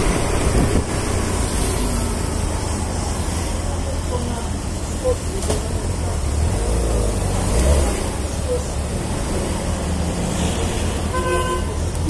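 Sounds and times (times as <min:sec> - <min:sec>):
surrounding cars: 0:00.0 - 0:12.0.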